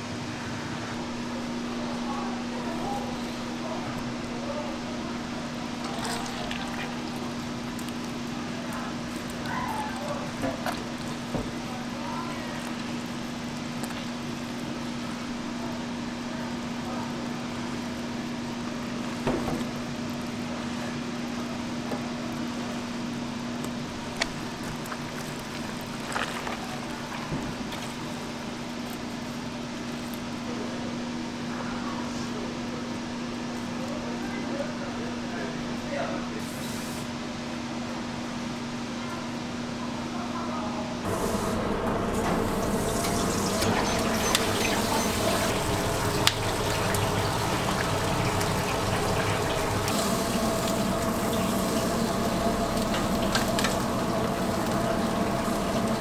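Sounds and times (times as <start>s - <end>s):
meat tearing: 24.0s - 29.4s
steady machine hum: 40.0s - 56.0s.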